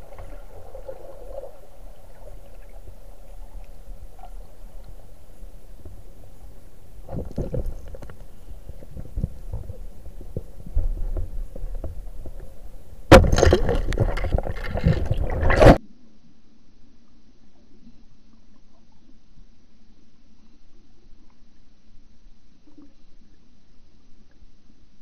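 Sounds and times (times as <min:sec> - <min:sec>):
rushing splashing water: 0:13.1 - 0:15.8.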